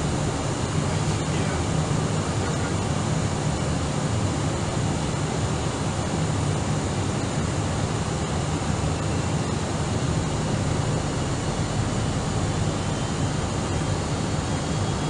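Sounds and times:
aircraft cabin engine rumble: 0.0 - 15.0
faint high whine: 7.2 - 15.0.

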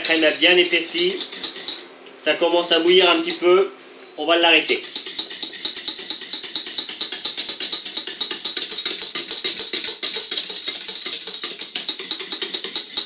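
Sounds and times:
whisk clicking against pan: 0.0 - 1.8, 4.7 - 13.0.

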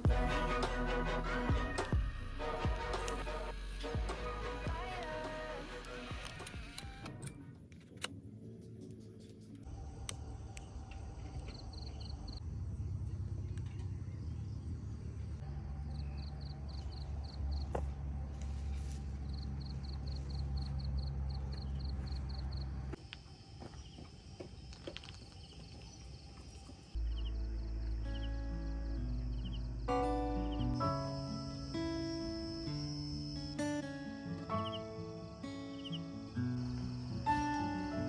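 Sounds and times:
crickets chirping: 9.7 - 38.0.

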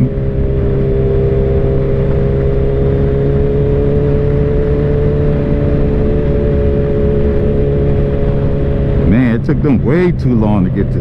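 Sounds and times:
motorcycle engine cruising: 0.0 - 11.0
wind noise: 0.0 - 11.0.

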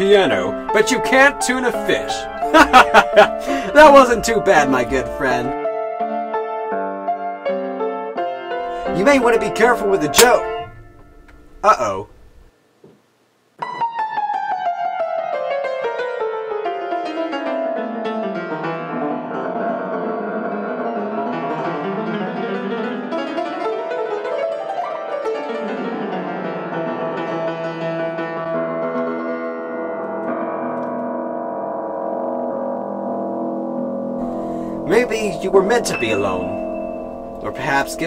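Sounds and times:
piano fast runs: 0.0 - 5.6, 8.7 - 12.5, 18.3 - 38.0.

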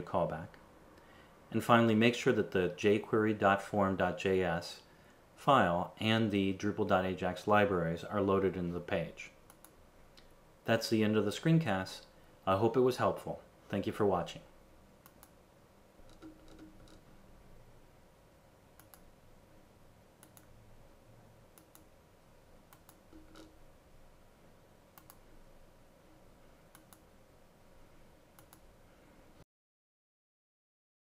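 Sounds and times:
low steady hum: 0.0 - 29.4
computer mouse clicks: 9.5 - 10.3, 15.0 - 15.4, 16.0 - 17.0, 18.8 - 19.1, 20.2 - 20.5, 21.6 - 21.9, 22.7 - 23.6, 24.9 - 25.3, 26.7 - 27.1, 28.4 - 28.7.

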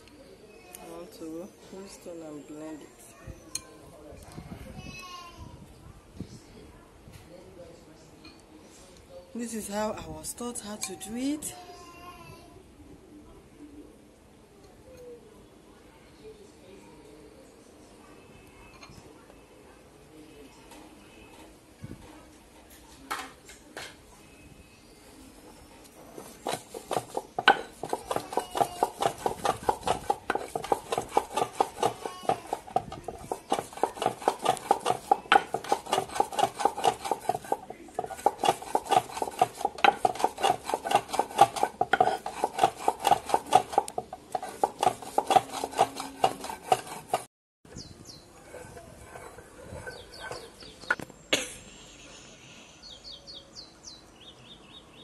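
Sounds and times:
stone grinding on stone: 26.1 - 47.3, 48.4 - 50.7.

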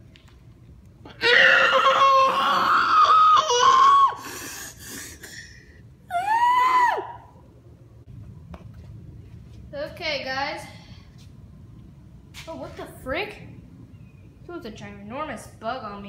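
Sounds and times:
person screaming: 1.2 - 4.3, 6.1 - 7.2.

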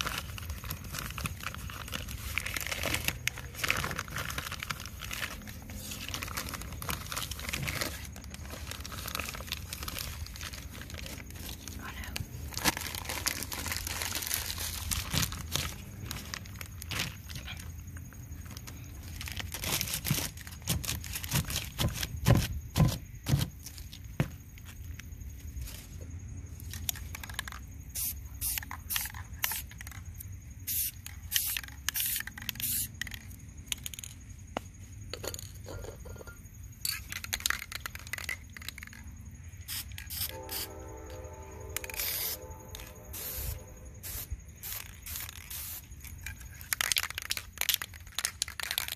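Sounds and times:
spray can ball rattling: 26.8 - 30.0, 30.6 - 34.2, 36.8 - 39.0, 39.7 - 40.6, 41.8 - 48.9
spray paint hissing: 27.9 - 30.0, 30.6 - 33.2, 39.7 - 40.6, 41.8 - 46.1.

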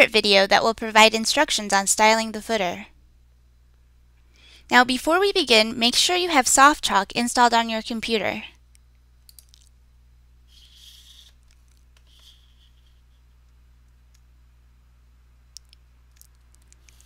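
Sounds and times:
low steady hum: 0.0 - 17.0
computer mouse clicks: 9.3 - 9.6.

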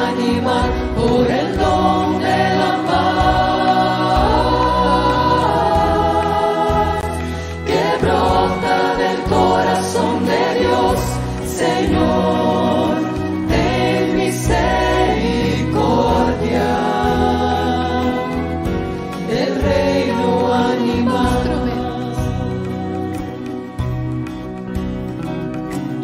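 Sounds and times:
mixed choir singing a hymn: 0.0 - 22.8
acoustic guitar: 0.0 - 26.0
bass guitar: 0.0 - 26.0.

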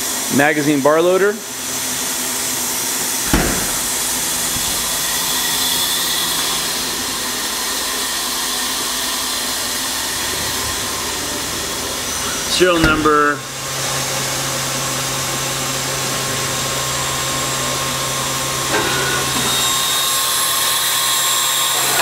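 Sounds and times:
machinery hum with hiss: 0.0 - 22.0
sharp knock: 3.3 - 4.9.

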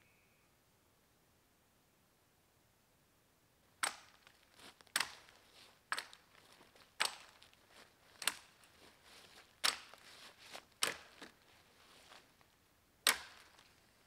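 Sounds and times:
blade strikes into wood: 3.8 - 4.2, 10.8 - 11.3, 13.0 - 13.6.

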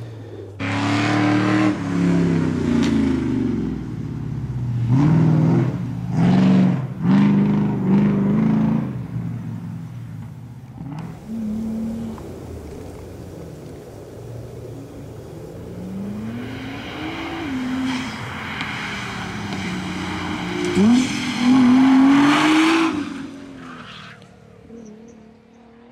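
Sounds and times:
car engine revving: 0.0 - 25.9
tyre hiss: 11.2 - 21.9.

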